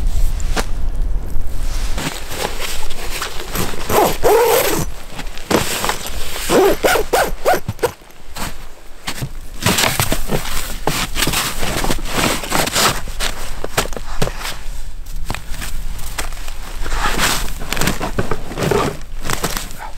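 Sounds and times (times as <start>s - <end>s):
gear rustling on wooden sled: 1.5s - 19.9s
footsteps in snow: 1.6s - 13.6s.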